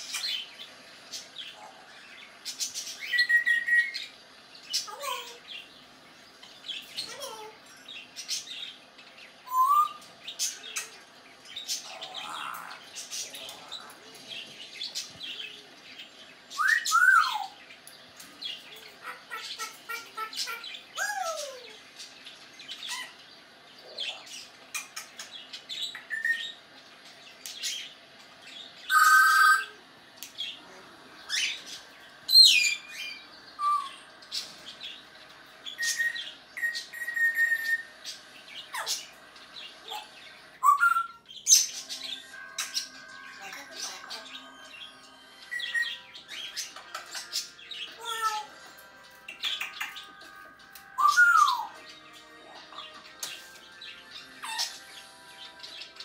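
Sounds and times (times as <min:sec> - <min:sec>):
parrot whistling: 0:28.9 - 0:29.8, 0:35.8 - 0:38.0, 0:51.0 - 0:51.8.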